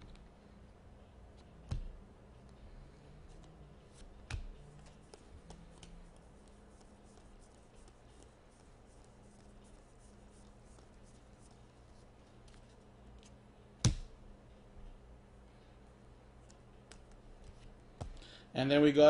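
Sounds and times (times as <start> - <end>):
cards being shuffled: 3.2 - 11.5.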